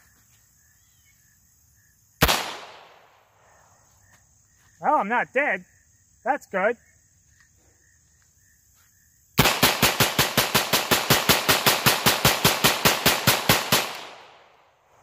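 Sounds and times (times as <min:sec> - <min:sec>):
pistol firing rapid shots: 0:02.2 - 0:03.0, 0:09.4 - 0:14.6.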